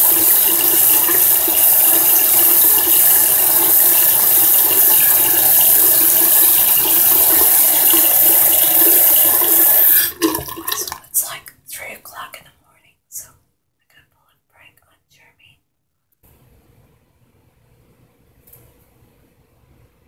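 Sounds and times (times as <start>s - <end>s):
water running from tap: 0.0s - 11.2s.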